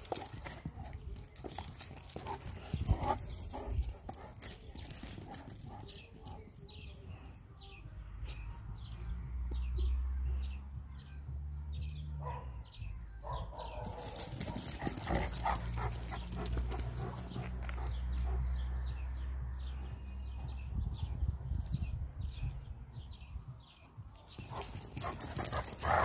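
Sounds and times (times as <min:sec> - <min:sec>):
dog barking: 0:12.2 - 0:14.6.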